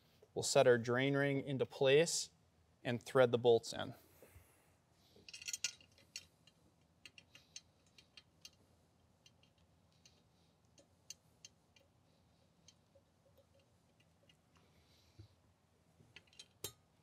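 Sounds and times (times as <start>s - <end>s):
faint small clicks and ticks: 5.2s - 12.0s, 12.6s - 15.3s.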